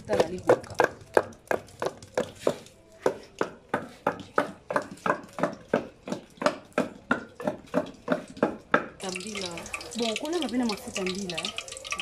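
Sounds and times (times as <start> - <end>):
pestle pounding in wooden mortar: 0.0 - 9.1.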